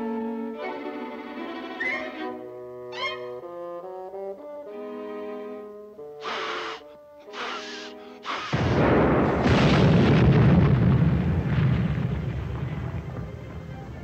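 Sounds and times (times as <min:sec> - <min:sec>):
cartoon explosion with deep rumble: 0:08.3 - 0:14.0.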